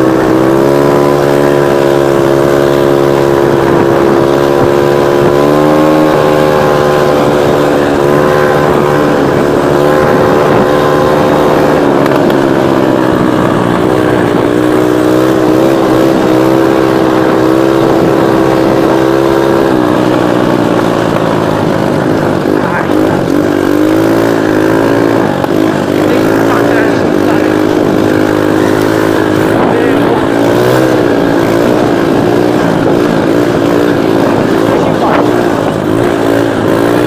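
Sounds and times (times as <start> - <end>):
atv engine running: 0.0 - 37.0.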